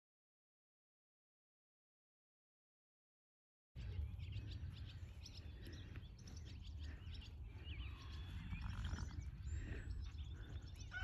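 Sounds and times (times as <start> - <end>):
small birds chirping: 3.8 - 11.0.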